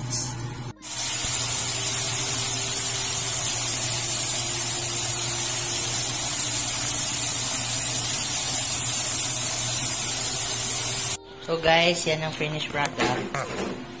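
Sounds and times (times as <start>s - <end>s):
chicken deep-frying in oil: 0.8s - 11.2s.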